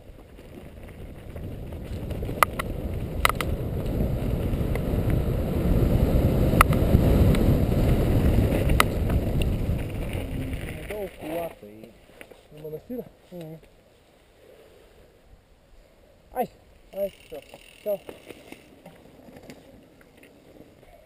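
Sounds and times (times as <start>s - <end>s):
wind on camera: 0.0s - 11.6s
bike tyre rumble: 0.0s - 14.0s
bike rattling clicks: 0.4s - 5.2s, 8.5s - 12.6s, 17.0s - 20.4s.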